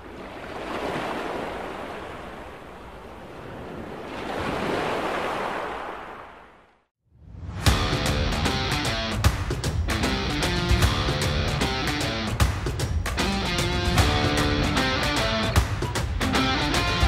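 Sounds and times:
ocean waves washing in: 0.0s - 7.7s
guitar music: 7.7s - 9.2s, 9.9s - 12.4s, 13.1s - 17.0s.

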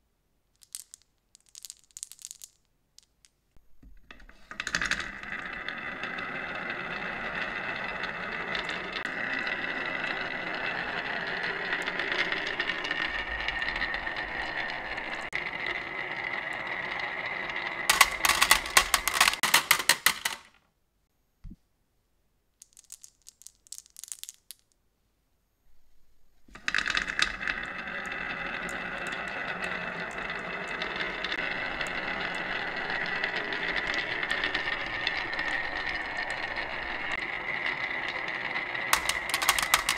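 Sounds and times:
marbles clattering into metal tin: 0.6s - 3.3s, 4.1s - 20.6s, 22.6s - 24.8s, 26.6s - 39.9s
marbles rolling on wooden track: 0.6s - 20.6s, 22.6s - 24.8s, 26.5s - 39.9s.

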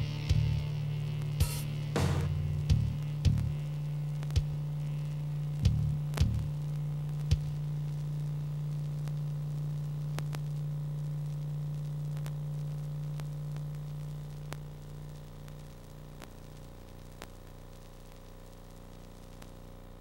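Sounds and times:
low electrical hum: 0.0s - 20.0s
sharp pop: 2.0s - 2.4s
faint clicks: 10.0s - 19.6s.

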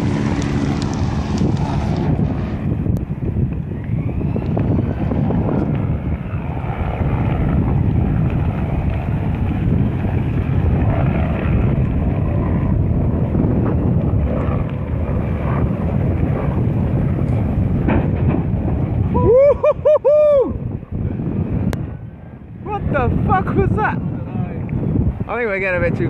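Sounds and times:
choppy sea: 0.0s - 26.0s
wind rumble on microphone: 0.0s - 26.0s.

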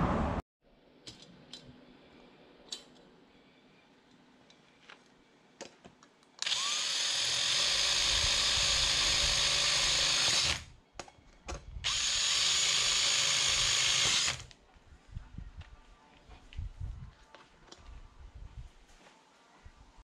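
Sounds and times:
cordless drill boring plastic: 6.4s - 10.7s, 11.8s - 14.5s.

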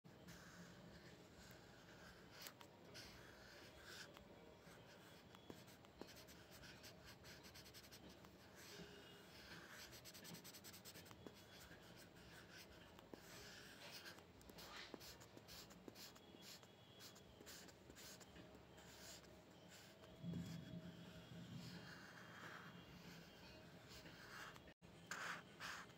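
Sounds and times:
pencil scratching on paper: 0.1s - 25.9s.

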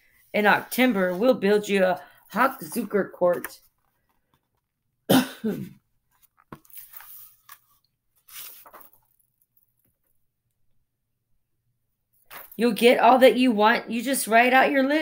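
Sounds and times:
person coughing: 5.1s - 5.8s
paper rustling: 6.1s - 10.2s.

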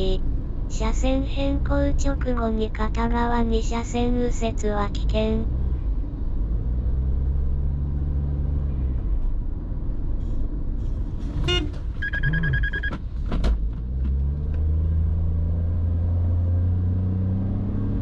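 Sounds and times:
car engine and road rumble: 0.0s - 18.0s
short horn-like toot: 11.4s - 12.9s
high beep: 12.0s - 13.0s.

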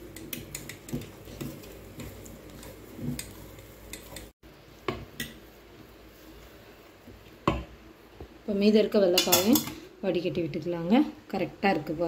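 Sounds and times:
wooden stick stirring thick dough: 0.0s - 7.4s.

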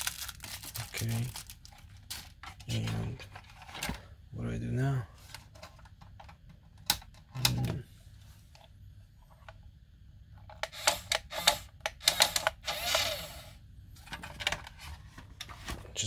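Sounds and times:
plastic transmitter clicks: 10.6s - 13.0s
small motor whirring: 10.7s - 13.6s.

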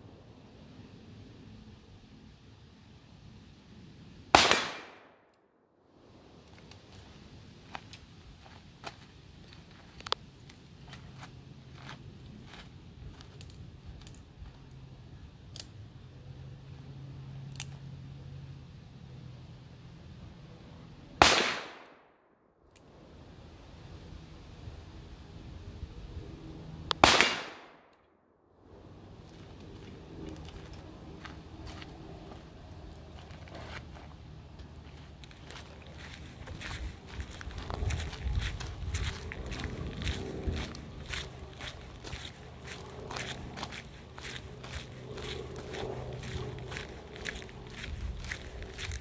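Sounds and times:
footsteps on gravel: 6.5s - 13.4s, 29.2s - 49.0s.

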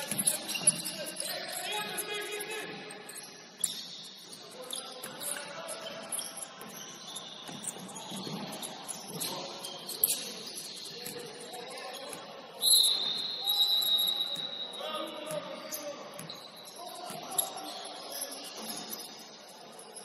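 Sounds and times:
referee's whistle: 12.6s - 16.8s.

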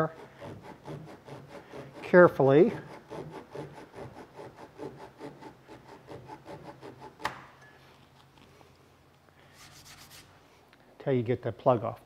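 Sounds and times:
pull saw rasping on wood: 0.0s - 7.5s.

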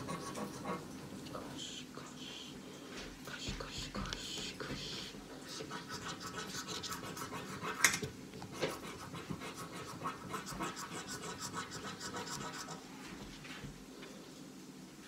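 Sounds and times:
scratch-off ticket being scratched: 8.8s - 12.8s.

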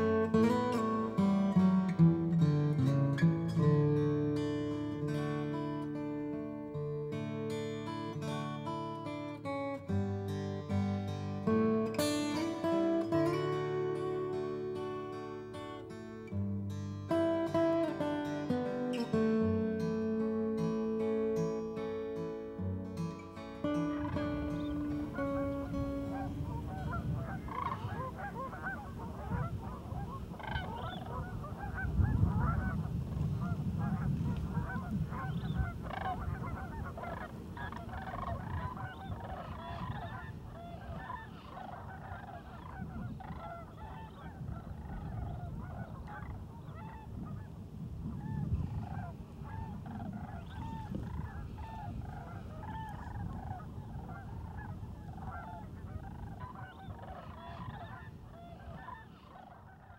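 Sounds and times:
geese honking: 22.4s - 59.9s.

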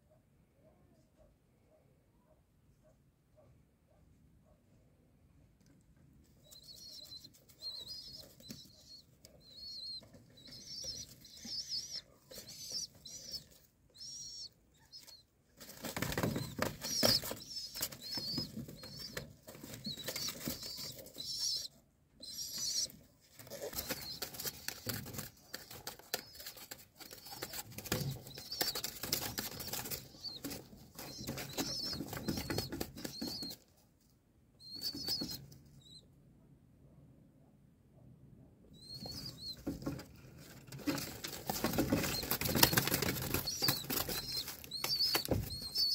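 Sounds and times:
young pigeon squeaking calls: 6.4s - 33.7s, 34.6s - 36.1s, 38.7s - 45.9s
wing flapping: 40.7s - 45.9s.

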